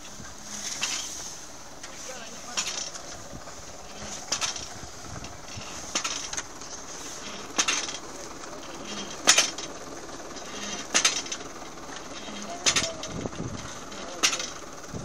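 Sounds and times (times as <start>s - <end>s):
farm implement running: 0.0s - 15.0s
sharp rattles and clinks: 0.0s - 15.0s.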